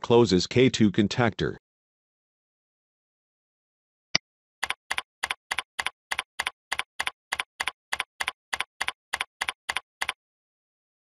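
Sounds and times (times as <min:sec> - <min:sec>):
keyboard keystrokes: 0:04.6 - 0:10.2.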